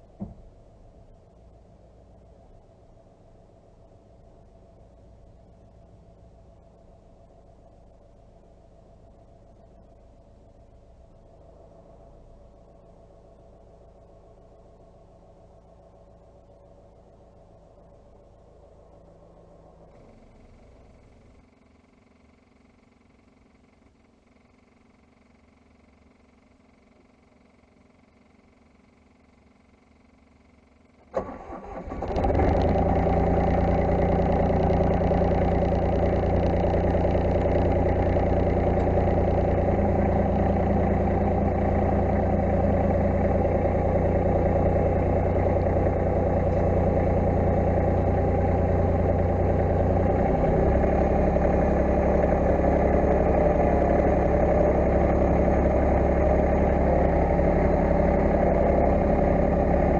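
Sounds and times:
diesel tractor engine starting: 18.7s - 22.0s, 30.9s - 59.9s.

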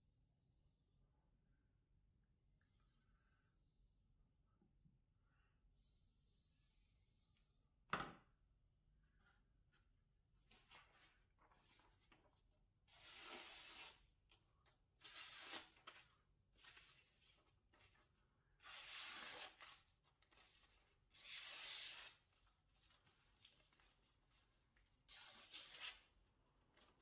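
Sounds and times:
knife slicing paper: 12.9s - 14.1s, 15.0s - 17.2s, 18.6s - 22.3s, 25.1s - 26.1s.

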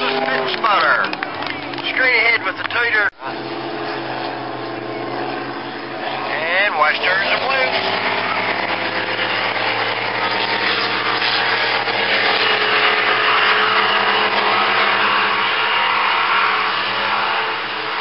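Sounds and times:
racing boat engines droning: 0.0s - 18.0s.

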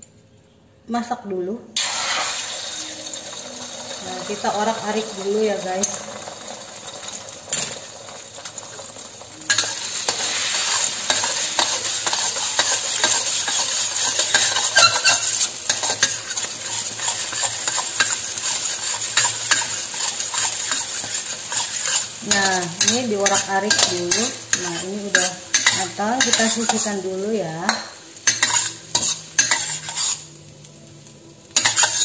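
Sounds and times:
eggs sizzling in hot oil: 1.8s - 32.0s
spatula scraping a wok: 9.5s - 30.4s, 31.6s - 32.0s.

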